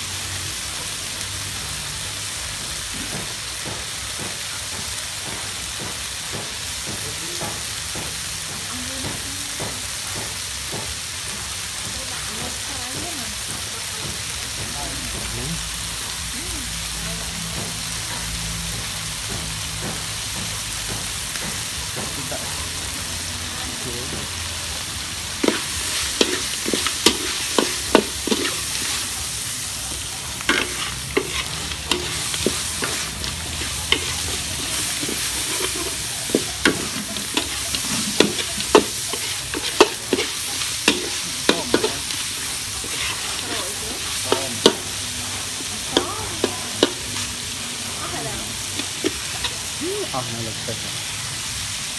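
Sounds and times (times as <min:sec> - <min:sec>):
crabs sizzling in a wok: 0:00.0 - 0:51.9
metal spatula scraping a wok: 0:25.3 - 0:49.8.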